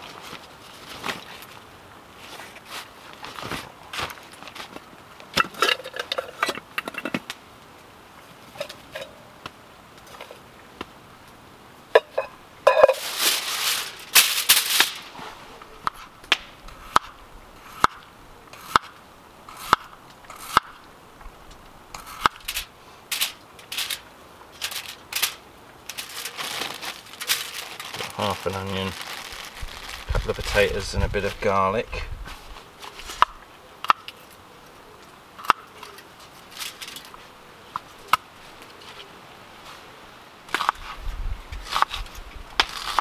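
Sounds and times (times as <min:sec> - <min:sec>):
loud rustle: 0:00.0 - 0:01.6, 0:12.8 - 0:15.7, 0:22.4 - 0:31.4.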